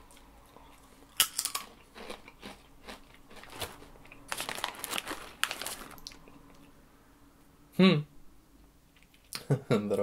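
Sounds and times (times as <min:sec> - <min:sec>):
snack crunching: 0:00.2 - 0:06.7
hand rummaging in foil bag: 0:03.4 - 0:06.1.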